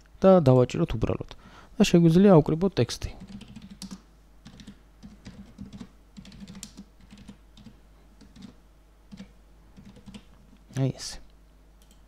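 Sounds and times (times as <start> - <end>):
keyboard typing clicks: 3.2 - 10.3, 11.8 - 12.0.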